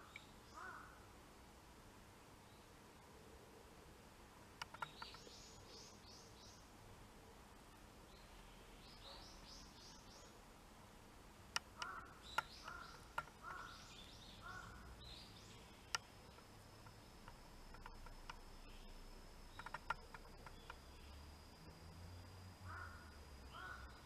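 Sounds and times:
faint bird calls: 0:00.0 - 0:01.1, 0:04.6 - 0:10.4, 0:11.6 - 0:21.3, 0:22.6 - 0:24.0
sharp clicks: 0:04.6 - 0:05.3, 0:11.5 - 0:13.7, 0:15.9 - 0:18.5, 0:19.5 - 0:20.8
thin steady high tone: 0:13.8 - 0:24.0.

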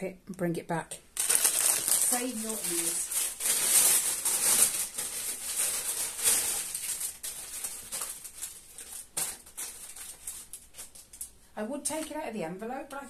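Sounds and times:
packaging crinkling being torn open: 0:01.2 - 0:11.4.

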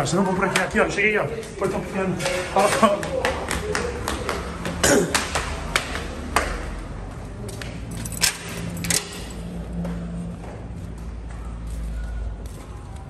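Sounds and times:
footsteps: 0:00.0 - 0:13.0
metal gate clicking and clanking: 0:08.0 - 0:09.5.

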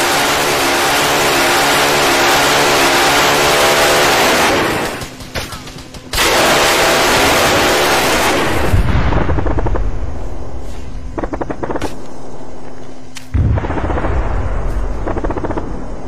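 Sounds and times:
rocket launch roar: 0:00.0 - 0:05.0, 0:06.2 - 0:11.0, 0:13.3 - 0:15.8
rapid crackling: 0:00.0 - 0:09.8
deep rumble: 0:05.8 - 0:16.0.

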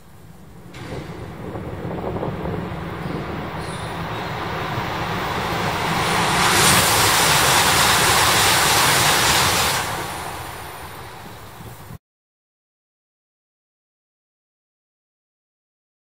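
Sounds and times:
high-speed train passing: 0:00.0 - 0:12.0.

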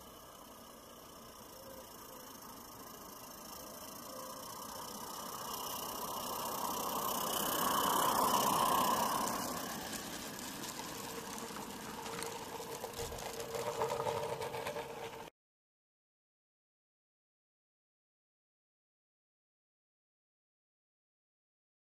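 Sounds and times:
steam locomotive running: 0:00.0 - 0:15.3
wagon wheels clicking and rattling: 0:04.4 - 0:15.3.

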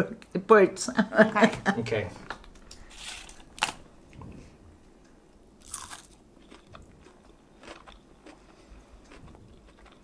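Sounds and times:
person chewing crunchy food: 0:05.6 - 0:10.0.

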